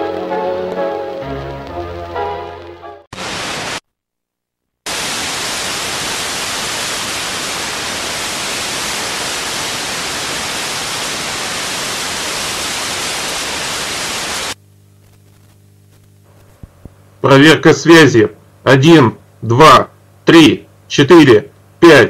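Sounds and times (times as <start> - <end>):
television static hiss: 0.0 - 3.8, 4.9 - 22.0
faint low hum: 14.6 - 22.0.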